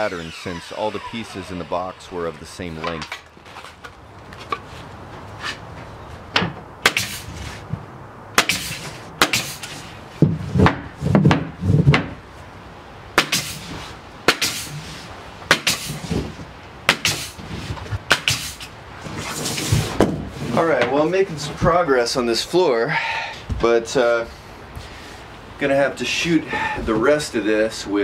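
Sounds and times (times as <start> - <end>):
sharp bangs of staples firing: 6.4 - 7.3, 8.4 - 12.1, 13.2 - 13.6, 14.2 - 14.7, 15.5 - 16.1, 16.9 - 17.4, 18.1 - 18.6
mallet striking floor stapler: 8.4 - 9.6.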